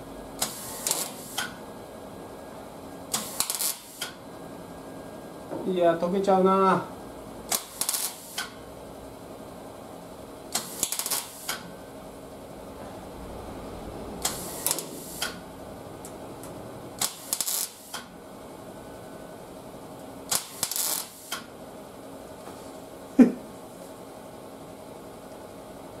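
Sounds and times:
mig welder crackling: 0.4s - 1.6s, 3.1s - 4.2s, 7.4s - 8.6s, 10.5s - 11.8s, 14.2s - 18.2s, 20.0s - 21.5s.

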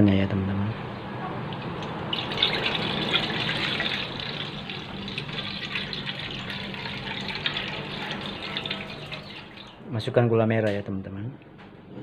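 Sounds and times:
low steady hum: 0.0s - 12.0s
liquid pouring into a pan: 1.6s - 9.9s.

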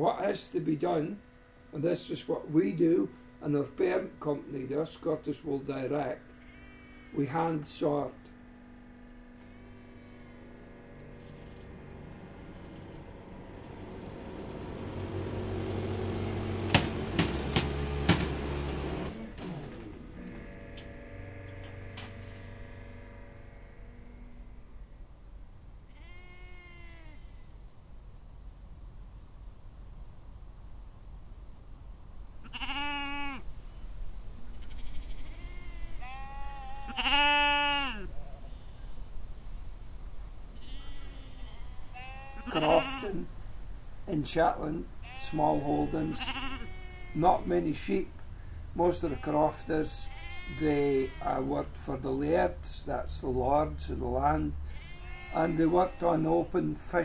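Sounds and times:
sheep bleating: 2.6s - 7.6s, 8.9s - 13.2s, 25.9s - 27.5s, 32.4s - 33.4s, 34.5s - 38.8s, 40.6s - 43.3s, 45.0s - 48.0s, 48.8s - 51.6s, 54.6s - 56.6s
machine motor humming: 7.3s - 24.9s
sharp knocks: 16.6s - 18.8s.

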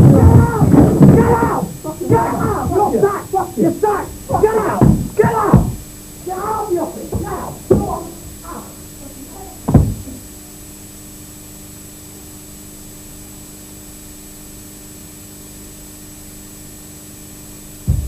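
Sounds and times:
steady low hum: 0.0s - 18.0s
door slamming shut: 3.9s - 5.8s, 9.7s - 10.2s.

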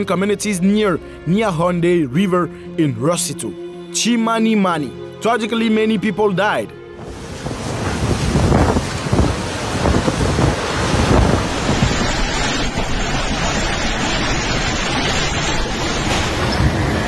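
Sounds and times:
wind buffeting microphone: 7.0s - 14.7s
wind and rain rushing: 7.0s - 17.0s.

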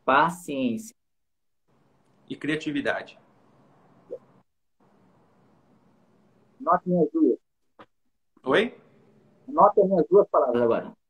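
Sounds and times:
faint steady hiss: 1.7s - 6.6s.

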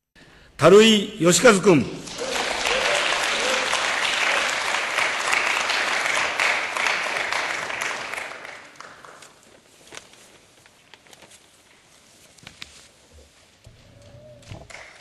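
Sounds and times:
applause: 2.0s - 9.6s, 14.6s - 15.0s.

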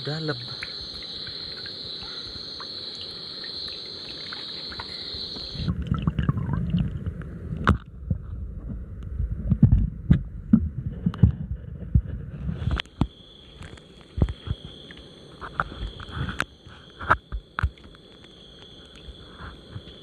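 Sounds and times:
night insects trilling: 0.0s - 5.7s, 12.6s - 20.0s
muffled underwater sloshing: 0.2s - 11.4s.

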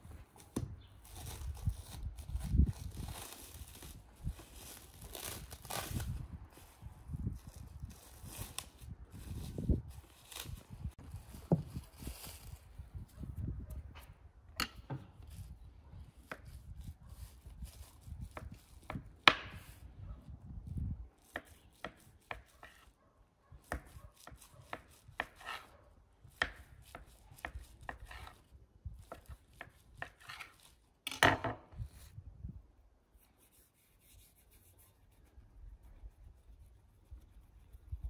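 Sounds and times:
knife cutting soft dough: 21.3s - 22.9s, 23.6s - 28.4s, 29.0s - 30.8s.

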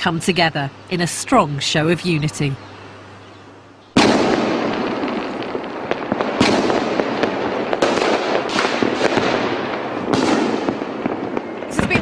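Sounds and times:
fireworks bangs: 3.9s - 12.0s
fireworks crackling: 3.9s - 12.0s.

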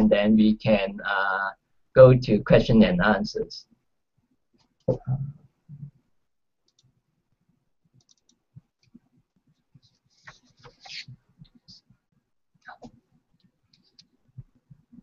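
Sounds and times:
mouse and keyboard clicks: 8.0s - 9.0s.

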